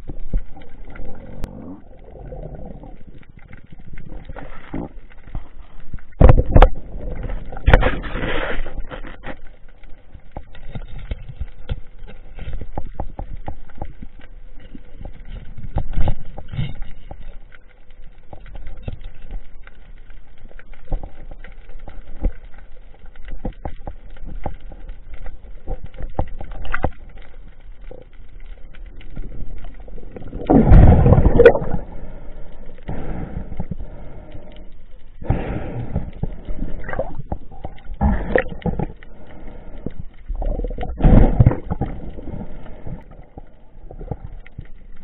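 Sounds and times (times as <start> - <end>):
underwater rumbling water movement: 0.0 - 45.0
underwater clicks and knocks: 2.7 - 19.9, 20.5 - 31.9, 35.8 - 39.0, 39.8 - 45.0
water rushing burst: 30.4 - 31.9.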